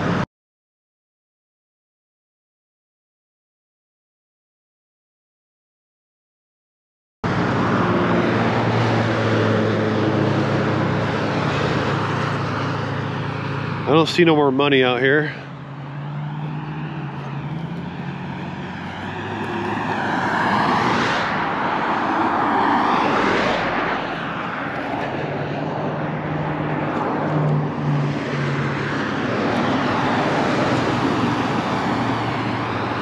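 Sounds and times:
traffic passing: 7.2s - 33.0s.

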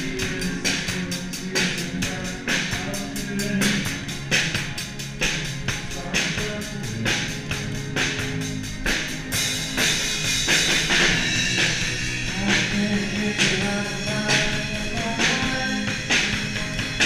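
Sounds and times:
electric bass: 0.0s - 17.0s
live rock band playing: 0.0s - 17.0s.

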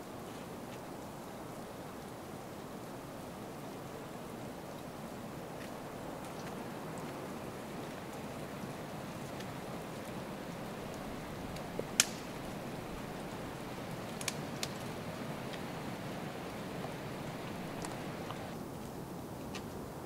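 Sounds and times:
steady rushing background noise: 9.7s - 18.6s
twigs snapping: 10.9s - 18.6s.

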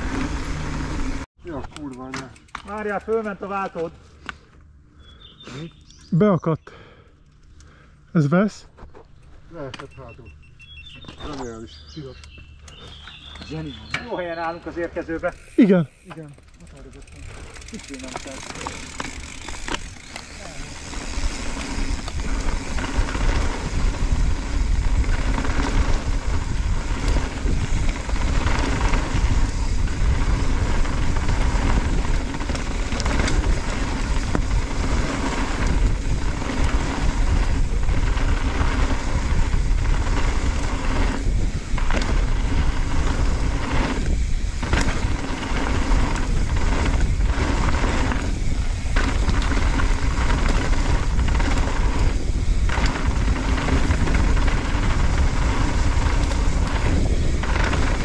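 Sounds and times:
bike tyres crunching over gravel: 0.0s - 6.2s, 7.4s - 58.0s
wind noise on microphone: 20.8s - 58.0s.

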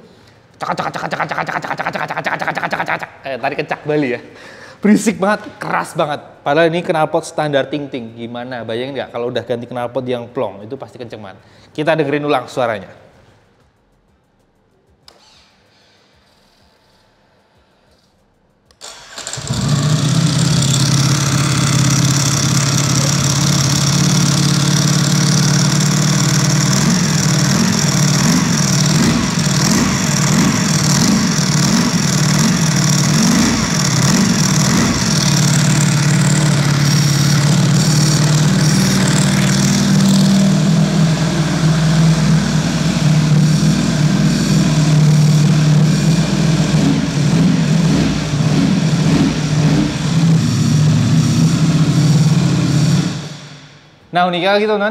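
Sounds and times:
motorcycle engine starting and idling: 18.8s - 53.9s
dry clutch clatter: 19.0s - 50.4s.

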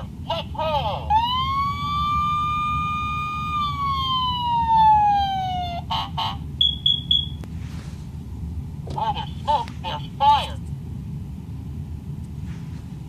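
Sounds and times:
toy siren wailing: 1.1s - 6.1s
quick high beeps: 6.6s - 7.4s.

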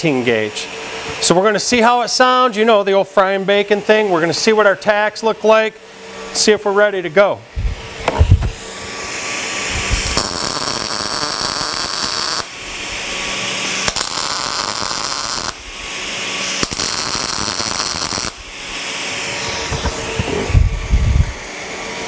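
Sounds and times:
fume extractor fan hum: 0.0s - 22.0s
welding arc crackling: 9.6s - 20.3s.

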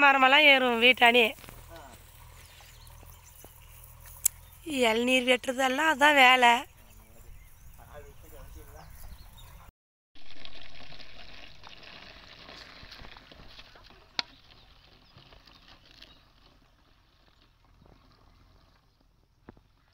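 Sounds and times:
liquid trickling into a bottle: 10.2s - 19.9s.

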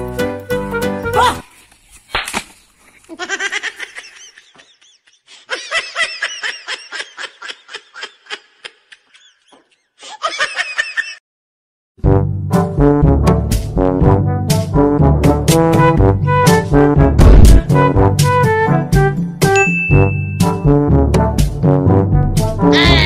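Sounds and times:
person laughing: 3.0s - 11.2s
loud brass music: 12.0s - 18.9s.

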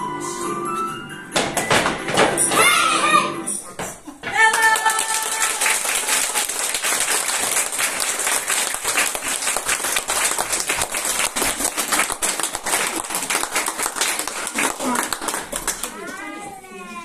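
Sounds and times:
small audience applauding: 4.4s - 16.2s.

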